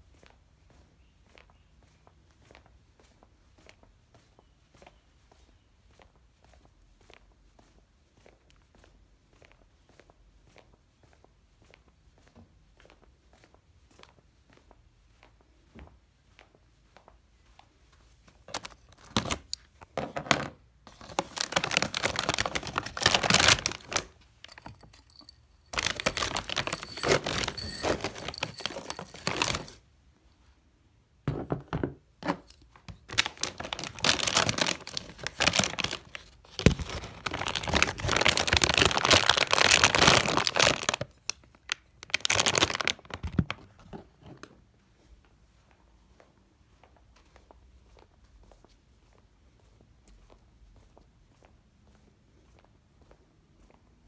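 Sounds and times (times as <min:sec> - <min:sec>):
crinkling and rustling: 0:17.6 - 0:29.8, 0:32.2 - 0:44.8.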